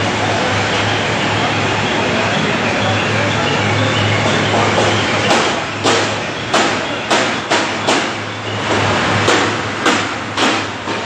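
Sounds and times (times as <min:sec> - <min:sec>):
low factory hum: 0:00.0 - 0:11.0
hammer knocking: 0:04.2 - 0:11.0.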